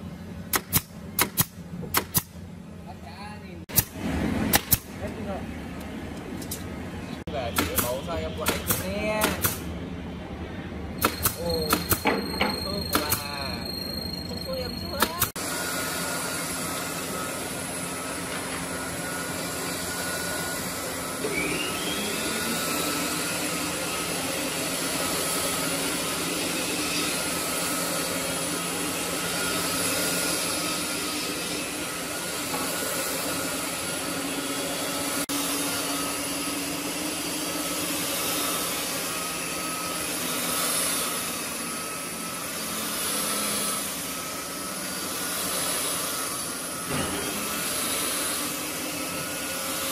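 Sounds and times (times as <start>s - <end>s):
short rising whine: 10.0s - 34.1s
belt sander sanding wood: 14.6s - 49.9s.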